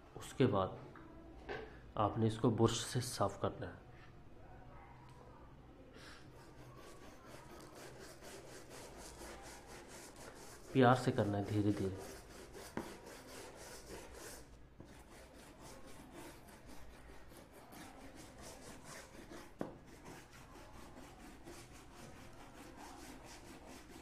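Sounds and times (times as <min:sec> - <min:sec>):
toothbrush scrubbing circuit boards: 0:06.4 - 0:24.0.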